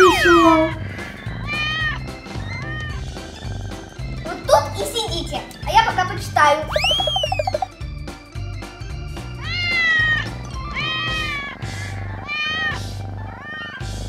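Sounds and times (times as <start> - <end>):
kittens meowing: 1.4 - 3.1, 9.4 - 14.0.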